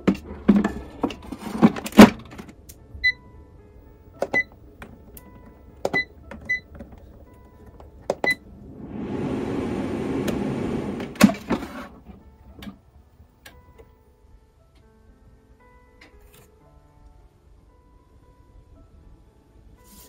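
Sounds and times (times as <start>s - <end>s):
air fryer fan rushing: 8.6s - 12.2s.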